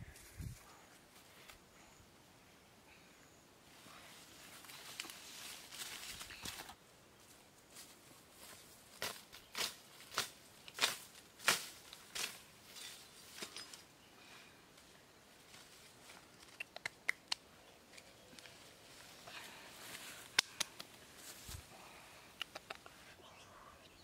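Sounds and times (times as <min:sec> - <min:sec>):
footsteps rustling through undergrowth: 0:00.0 - 0:01.6, 0:03.7 - 0:14.0, 0:14.7 - 0:16.4, 0:18.4 - 0:21.8
light sharp clicks and taps: 0:22.4 - 0:23.0.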